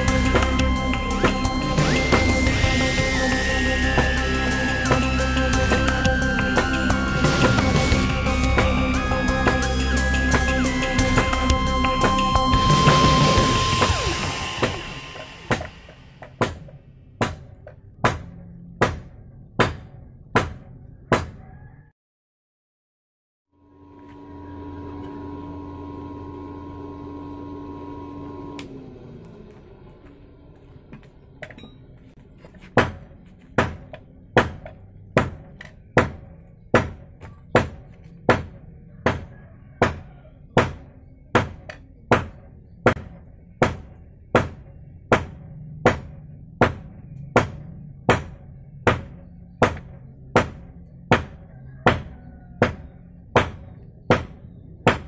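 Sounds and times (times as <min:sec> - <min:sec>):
steady hum winding down: 0:00.0 - 0:17.2, 0:23.6 - 0:32.2
hammer striking hot steel on anvil: 0:12.0 - 0:21.4, 0:32.7 - 0:55.0.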